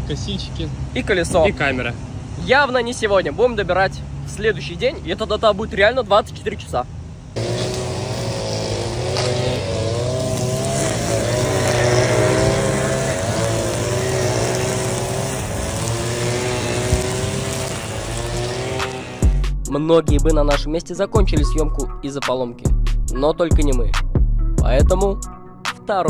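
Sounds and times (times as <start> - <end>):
grass-cutting engines running: 7.4 - 19.4.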